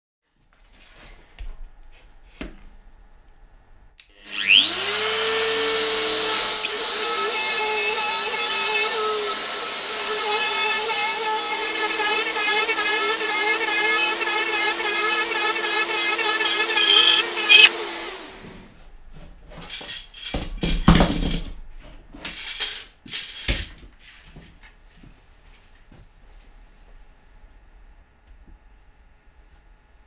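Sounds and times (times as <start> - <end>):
router cutting plywood: 4.1 - 17.8
dust extraction vacuum running: 11.5 - 18.3.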